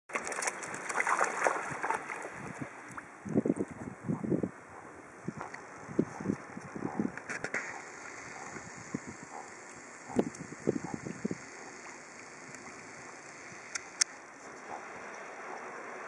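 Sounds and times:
wind buffeting microphone: 1.3s - 7.4s, 8.3s - 11.6s
sharp clicks: 12.2s - 14.2s.

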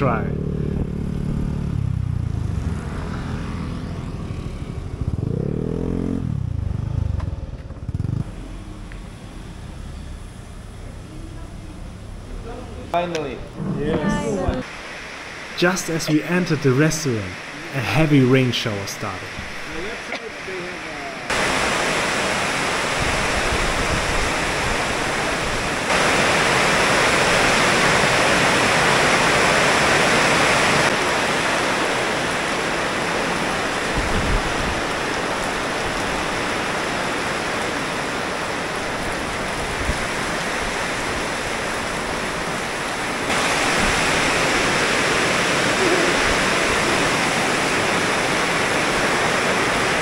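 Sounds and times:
heavy rain: 1.6s - 50.0s.

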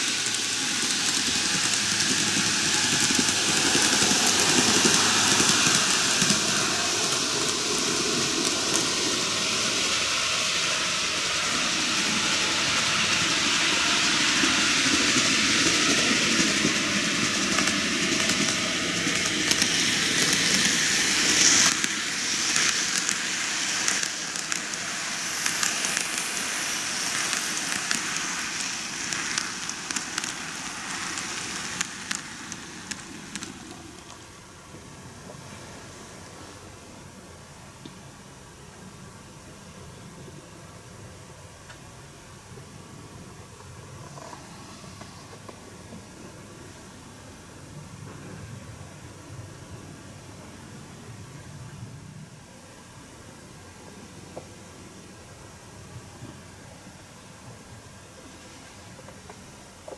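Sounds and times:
model train wheels rolling on rails: 0.0s - 59.9s
fine crackling ticks: 27.1s - 34.2s.

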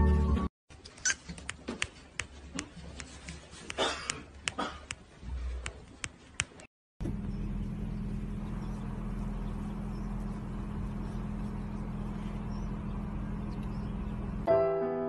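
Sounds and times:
street noise: 0.7s - 14.5s
vehicle engine hum: 7.0s - 14.5s.

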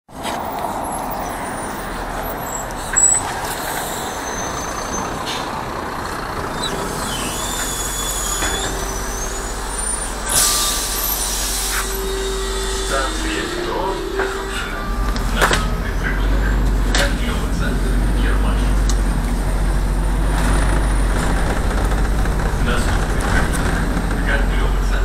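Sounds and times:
bus engine and road noise: 0.1s - 25.0s
thin high brake squeals: 0.8s - 5.6s, 6.5s - 17.4s
air brake hiss: 6.8s - 14.6s.

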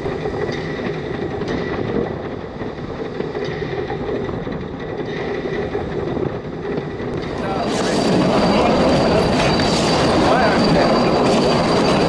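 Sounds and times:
steam locomotive running: 0.0s - 12.0s.

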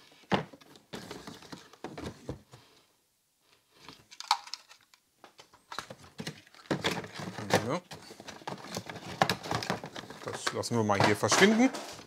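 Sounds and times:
packaging rustling and crinkling: 5.6s - 12.0s.

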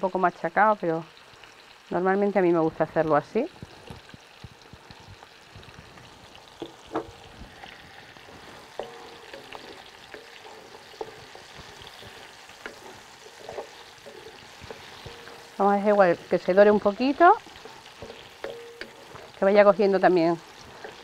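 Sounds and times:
food sizzling in a frying pan: 0.0s - 21.0s
wooden spoon clicking against pan: 17.0s - 19.2s.

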